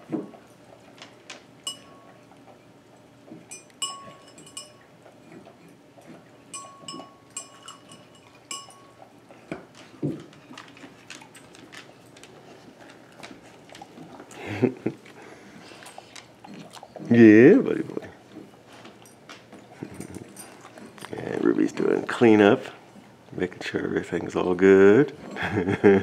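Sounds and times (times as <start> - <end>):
dog eating clicks: 0.2 - 22.4
metal dog bowl clinking: 1.6 - 2.6, 3.4 - 12.2, 18.9 - 22.6.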